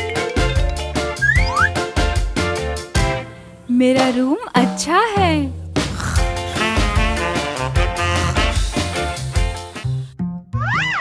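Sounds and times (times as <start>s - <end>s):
upbeat background music: 0.0s - 11.0s
steady bass line: 5.2s - 10.1s.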